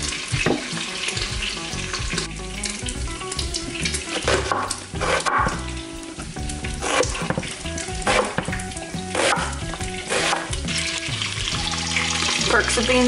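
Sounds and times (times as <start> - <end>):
background music: 0.0 - 13.0
bacon sizzling: 0.0 - 13.0.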